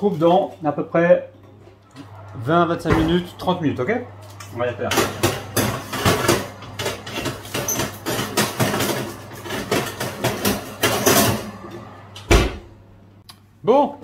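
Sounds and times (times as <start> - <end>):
metal tray scraping oven rack: 4.8 - 12.2.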